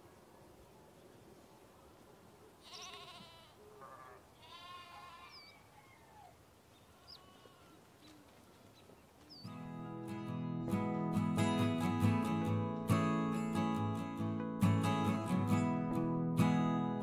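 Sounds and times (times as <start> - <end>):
lambs bleating: 2.6 - 5.6, 6.8 - 7.9.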